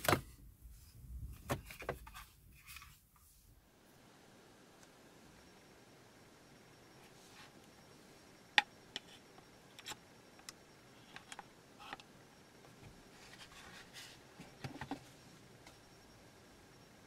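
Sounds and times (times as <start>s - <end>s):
soft handling rustle: 11.0s - 15.8s.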